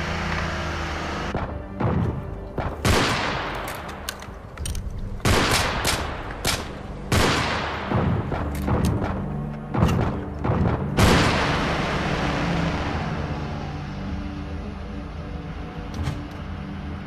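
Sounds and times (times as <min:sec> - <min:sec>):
low hum: 0:00.0 - 0:17.0
gunshots echoing: 0:01.4 - 0:04.1, 0:05.1 - 0:13.0.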